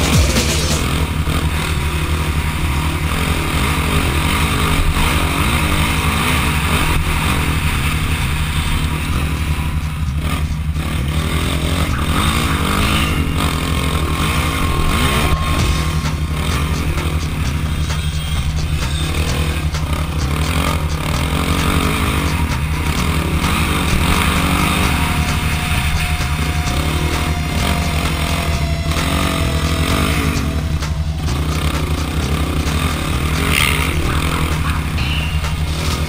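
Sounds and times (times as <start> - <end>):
quad engine revving: 0.0 - 36.0.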